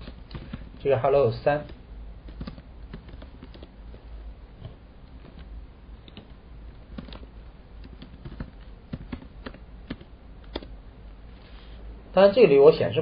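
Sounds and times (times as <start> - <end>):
computer keyboard keystrokes: 0.0 - 0.8, 1.6 - 3.7, 4.6 - 10.8
steady low hum: 0.0 - 13.0.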